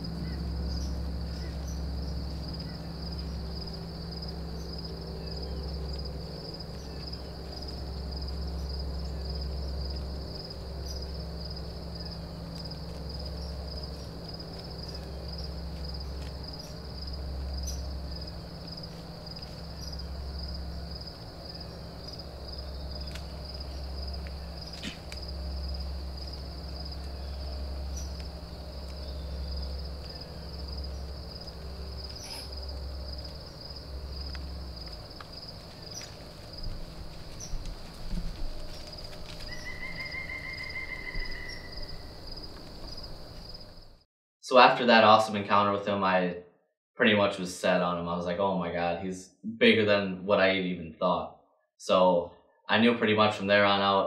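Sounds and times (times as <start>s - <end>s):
low rumble: 0.0s - 39.7s
high insect trill: 0.0s - 44.0s.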